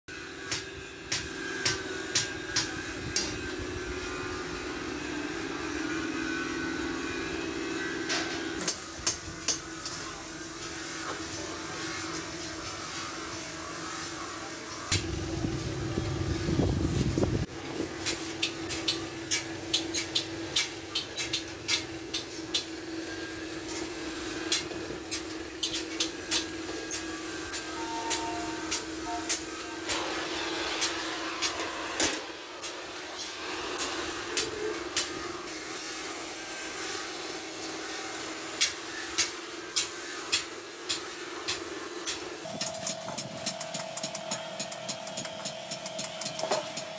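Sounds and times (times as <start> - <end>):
steady hum: 0.2 - 30.2
cutting torch hissing: 8.1 - 46.9.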